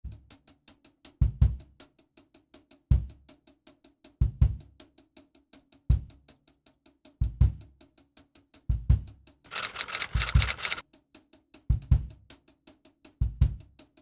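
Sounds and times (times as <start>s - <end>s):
fast steady ticking: 9.5s - 10.8s.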